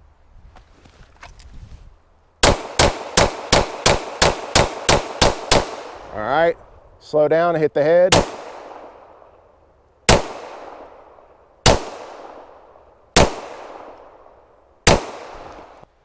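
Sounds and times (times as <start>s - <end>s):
pistol shots with echo: 2.4s - 6.1s, 8.1s - 9.3s, 10.1s - 15.8s.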